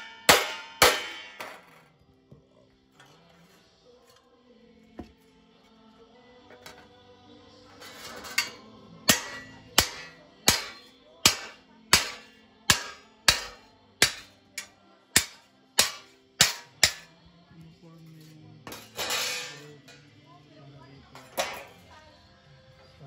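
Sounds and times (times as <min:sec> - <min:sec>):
hammer striking steel sheet: 0:00.0 - 0:01.8, 0:08.1 - 0:17.1, 0:21.2 - 0:21.8.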